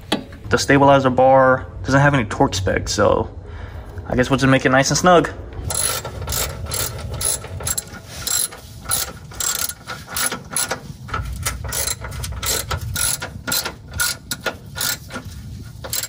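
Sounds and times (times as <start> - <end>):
ratchet wrench clicking: 5.7 - 16.0.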